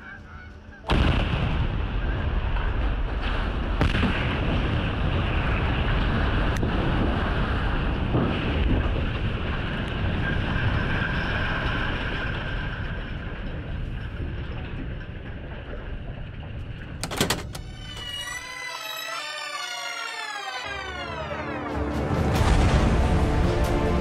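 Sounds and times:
rumbling roar of structures collapsing: 0.9 - 17.0.

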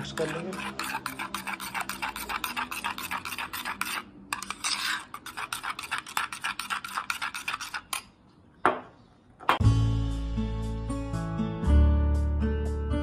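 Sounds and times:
metal spoon scraping a bowl: 0.0 - 8.3.

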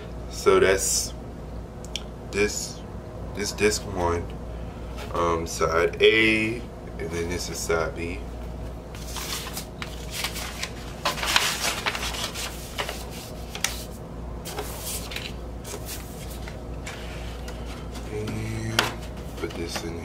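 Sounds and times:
steady low hum: 0.0 - 20.0
paper rustling and sliding: 9.0 - 18.2.

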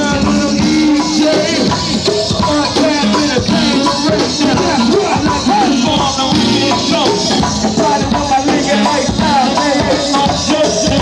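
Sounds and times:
drum kit and percussion groove: 0.0 - 11.0.

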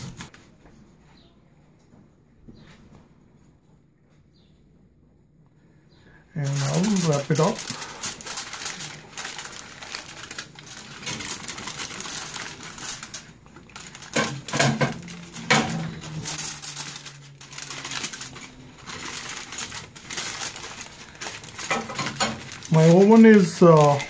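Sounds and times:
aluminium foil crinkling: 6.3 - 24.0.

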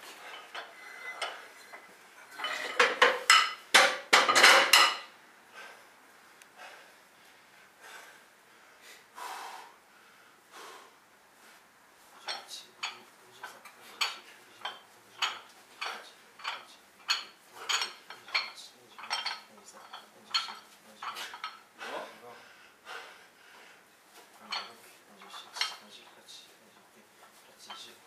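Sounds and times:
metal weights clinking: 0.0 - 5.1, 12.2 - 21.6, 24.4 - 25.9.

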